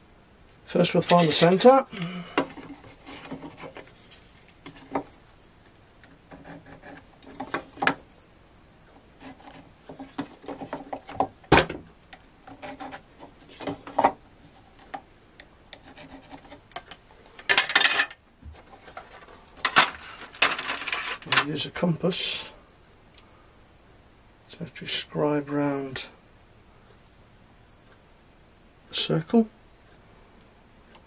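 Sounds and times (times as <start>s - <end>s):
pencil scratching on wood: 6.3s - 7.7s, 9.2s - 10.9s, 12.4s - 14.8s, 15.7s - 16.7s.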